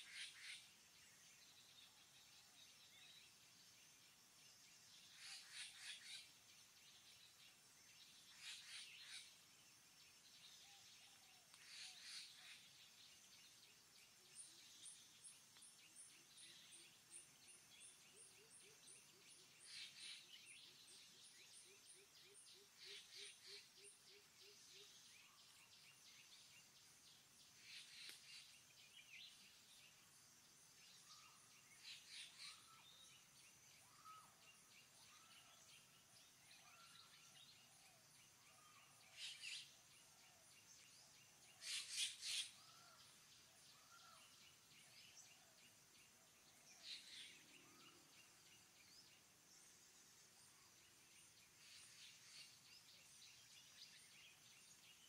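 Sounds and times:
loud bird calls: 0:41.5 - 0:43.0.

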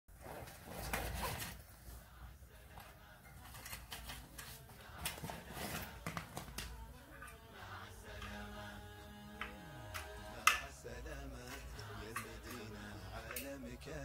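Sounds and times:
cloth rustling: 0:00.1 - 0:02.1.

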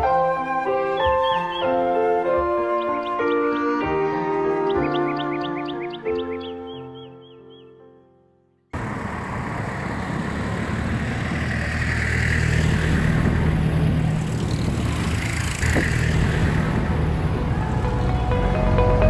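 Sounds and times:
road traffic passing: 0:08.7 - 0:19.0.

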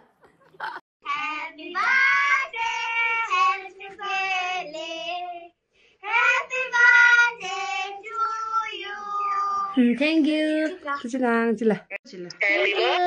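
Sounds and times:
children singing over phone: 0:01.0 - 0:09.8.

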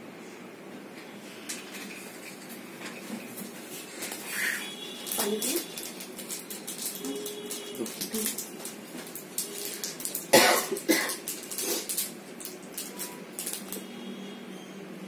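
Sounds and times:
person coughing: 0:10.3 - 0:11.2.

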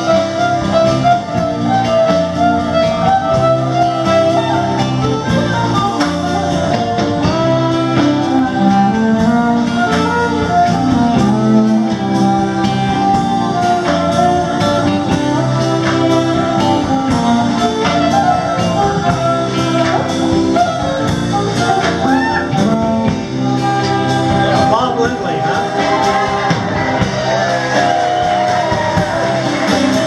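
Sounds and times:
electric bass: 0:00.0 - 0:30.0
steady beat: 0:00.0 - 0:30.0
violin: 0:00.0 - 0:30.0.

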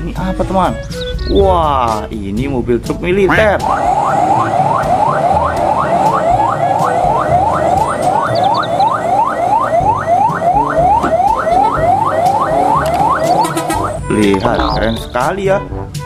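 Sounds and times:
truck engines rumbling: 0:00.0 - 0:15.9
vehicle siren whooping: 0:03.3 - 0:15.2.

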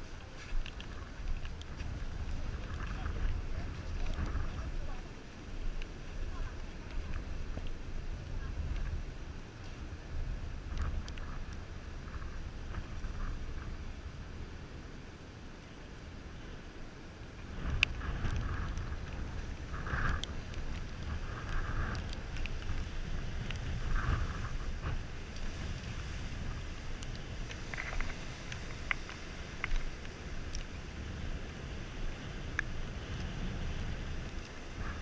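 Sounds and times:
low rumble of surf: 0:00.0 - 0:35.0
wind buffeting microphone: 0:00.0 - 0:35.0
light clicks and taps: 0:05.8 - 0:07.8, 0:27.0 - 0:30.8.

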